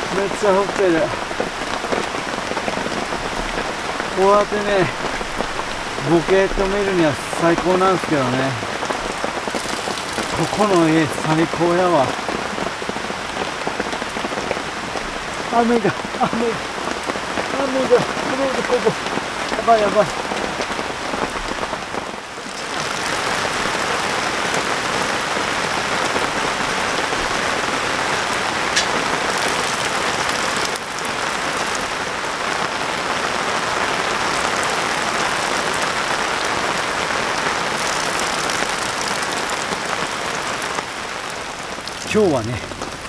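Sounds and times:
heavy rain pouring: 0.0s - 43.0s.

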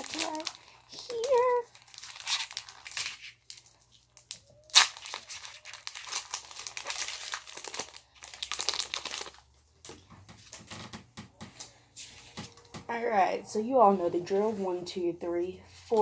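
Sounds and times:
foil wrapper crinkling: 0.0s - 10.9s.

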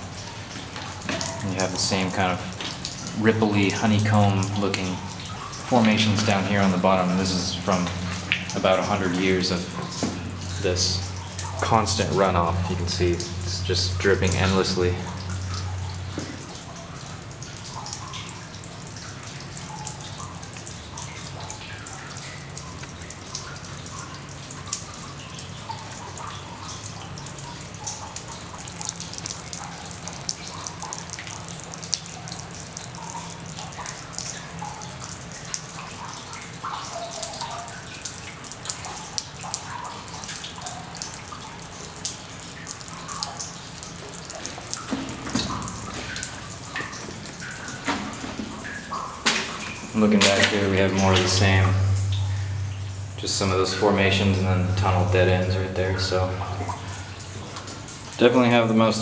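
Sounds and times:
trickling water: 0.0s - 59.0s
water drips plinking into pools: 0.0s - 59.0s.

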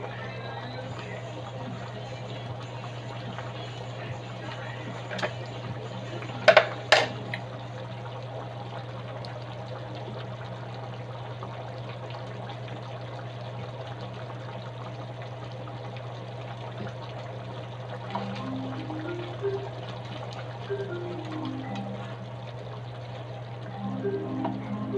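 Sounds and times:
low hum: 0.0s - 11.6s, 17.3s - 24.9s
stew simmering and bubbling: 0.0s - 24.9s.

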